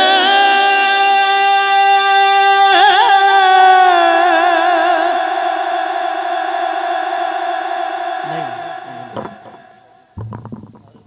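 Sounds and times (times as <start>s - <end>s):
person singing long high note: 0.0s - 5.2s, 8.2s - 10.0s.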